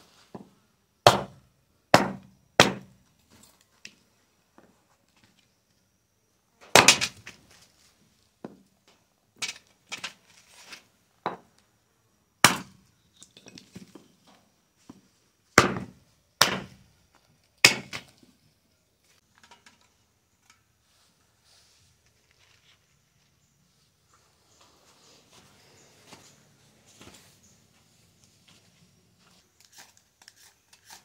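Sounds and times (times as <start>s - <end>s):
firewood chopping blows: 1.0s - 3.0s, 15.6s - 16.8s, 17.6s - 18.1s.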